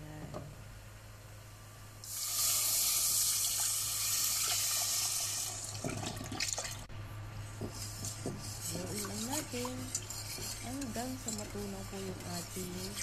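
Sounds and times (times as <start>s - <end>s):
whisk clicking against a pot: 7.6s - 13.0s.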